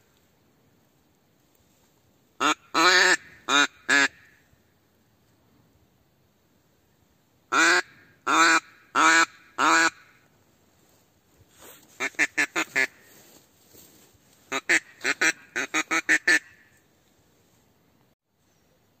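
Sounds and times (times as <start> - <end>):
duck call quacks: 2.4 - 4.4, 7.5 - 10.1, 11.9 - 13.1, 14.5 - 16.7.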